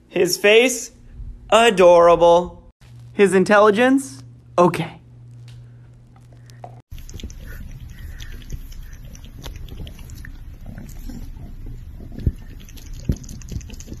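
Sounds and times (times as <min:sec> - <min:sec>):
kitten low rumble with clicks: 0:06.4 - 0:14.0.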